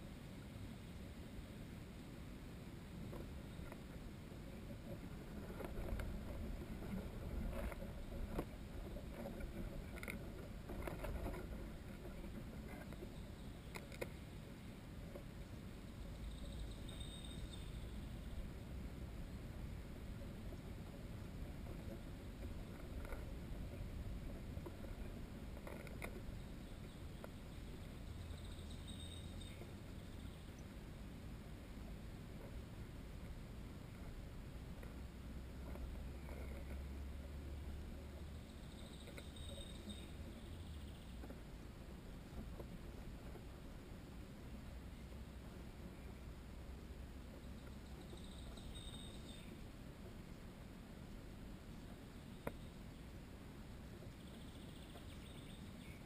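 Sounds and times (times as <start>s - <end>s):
steady low rumble: 0.0s - 56.0s
faint clicks and ticks: 3.0s - 14.2s, 20.2s - 30.8s, 33.2s - 41.6s, 42.2s - 43.8s, 51.8s - 52.8s.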